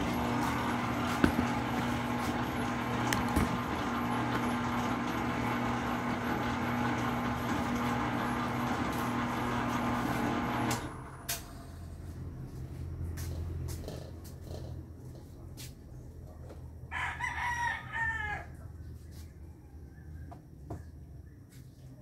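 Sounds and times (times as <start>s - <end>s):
stand mixer motor hum: 0.0s - 11.1s.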